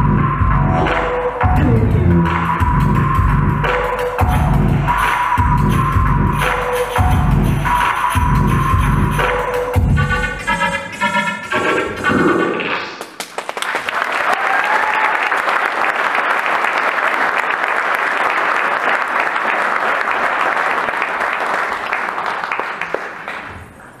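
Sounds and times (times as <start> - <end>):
audience applauding: 13.0 - 24.0.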